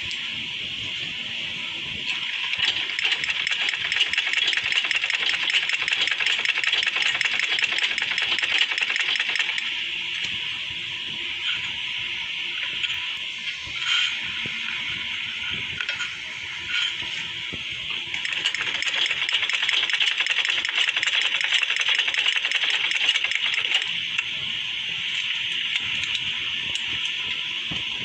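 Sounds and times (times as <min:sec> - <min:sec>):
sewing machine stitching: 0:02.5 - 0:09.6, 0:18.2 - 0:23.9.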